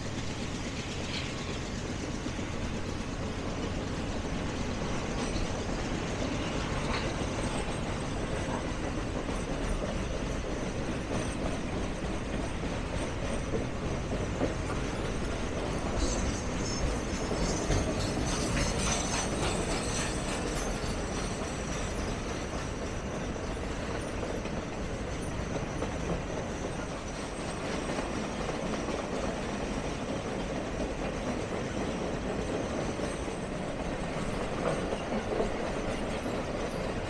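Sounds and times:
clickety-clack of wheels: 0.0s - 37.0s
train wheels rumbling on rails: 0.0s - 37.0s
high wheel squeal: 14.8s - 28.3s.

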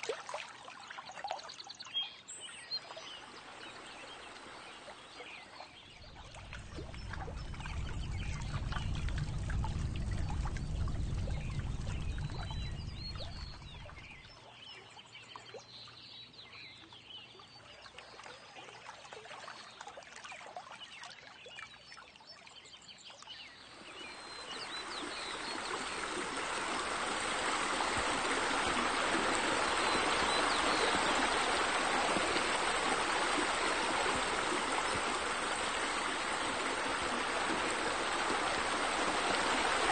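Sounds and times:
water pouring into a pool: 0.0s - 1.9s, 2.8s - 15.8s, 17.6s - 39.9s
birds chirping: 5.0s - 14.4s, 27.9s - 36.4s
low rumble: 6.0s - 14.3s.

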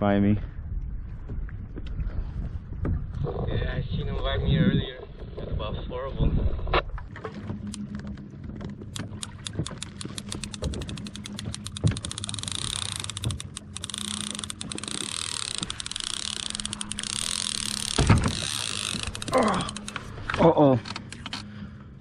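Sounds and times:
fishing reel drag whining: 9.0s - 20.2s.

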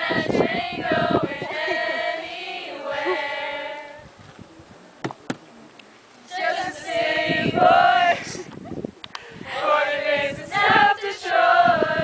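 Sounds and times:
group of people singing: 0.0s - 4.1s, 6.3s - 8.4s, 9.4s - 12.0s.

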